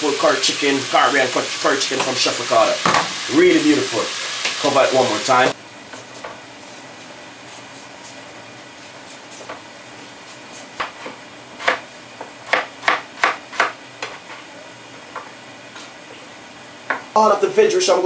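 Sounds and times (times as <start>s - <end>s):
kitchen items knocking on counter: 2.8s - 3.2s.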